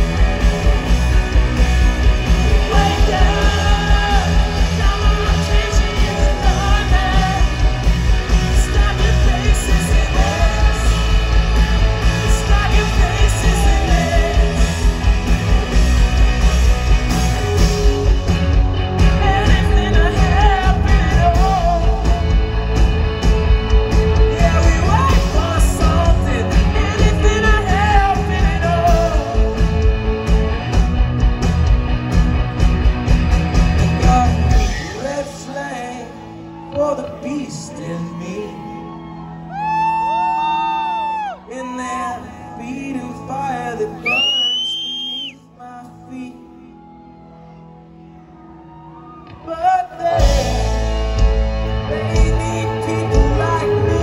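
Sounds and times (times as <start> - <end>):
person singing: 0.0 - 16.0, 17.1 - 22.7, 24.2 - 30.1, 33.9 - 47.4, 49.2 - 54.0
steady drum beat: 0.0 - 34.7
electric guitars: 0.0 - 45.3, 46.7 - 54.0.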